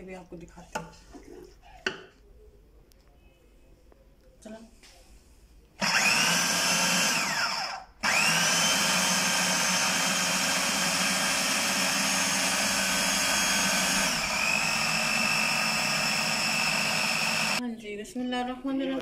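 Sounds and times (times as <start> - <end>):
food processor motor whining: 5.8 - 17.6.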